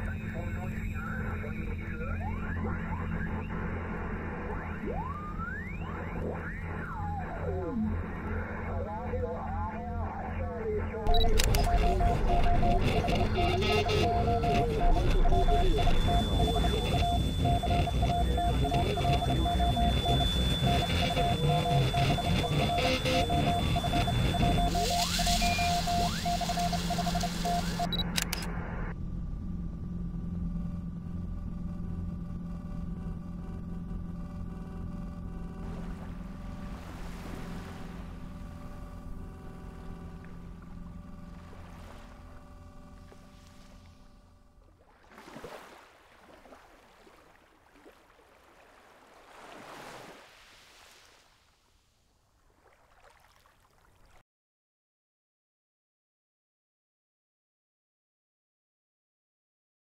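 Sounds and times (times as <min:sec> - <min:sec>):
stuttering electronic beeps: 0:00.0 - 0:08.9, 0:10.8 - 0:28.5
low steady hum: 0:00.0 - 0:44.9
sharp clicks: 0:11.1 - 0:19.9, 0:20.6 - 0:28.5
rising electronic sweep: 0:11.1 - 0:28.0
faint rushing water: 0:44.8 - 0:51.5, 0:52.5 - 0:54.2.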